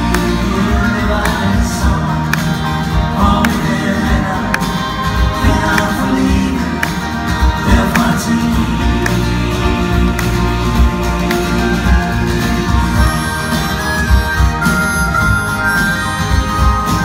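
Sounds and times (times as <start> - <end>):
live band playing: 0.0 - 17.0.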